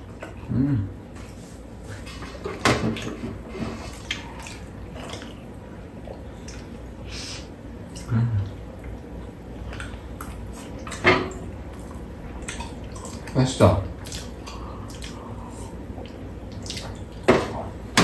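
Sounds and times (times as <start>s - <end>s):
low vocal sound: 0.4s - 1.0s, 8.0s - 8.6s
wet chewing and lip-smacking: 4.0s - 7.0s, 7.8s - 11.0s, 11.6s - 17.3s.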